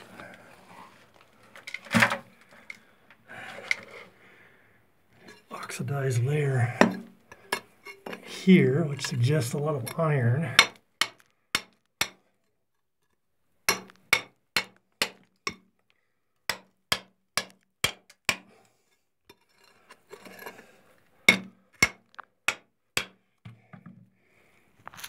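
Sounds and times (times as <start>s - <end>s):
steel bar striking rock: 9.9s - 12.3s, 13.7s - 15.6s, 16.5s - 18.5s, 21.3s - 23.2s.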